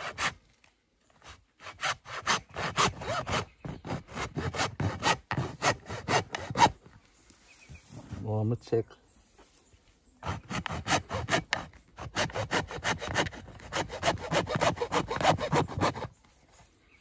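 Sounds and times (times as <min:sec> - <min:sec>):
hacksaw cutting gourd shell: 0:01.6 - 0:06.8, 0:10.2 - 0:16.1.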